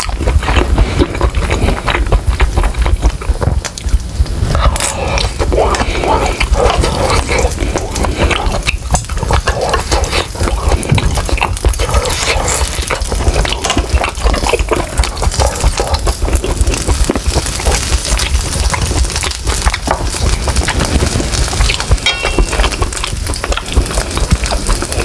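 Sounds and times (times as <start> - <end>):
wet chewing and mouth smacking: 0.0 - 25.0
meat sizzling on a grill: 14.9 - 25.0.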